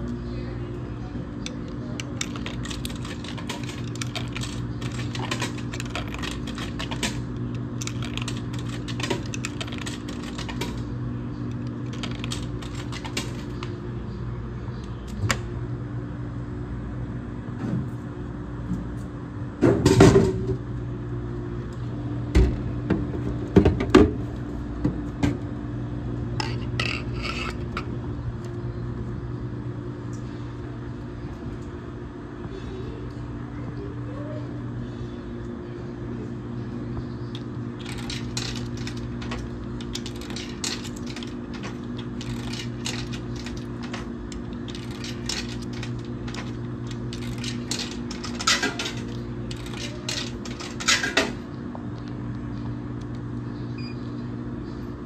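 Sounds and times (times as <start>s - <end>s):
low machine hum: 0.0s - 55.0s
coins clicking through coin mechanism: 2.0s - 10.9s, 11.5s - 13.6s, 37.3s - 51.4s.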